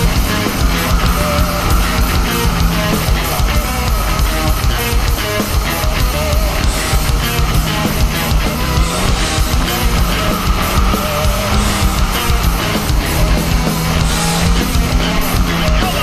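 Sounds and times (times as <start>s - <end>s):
heavy rock music: 0.0s - 16.0s.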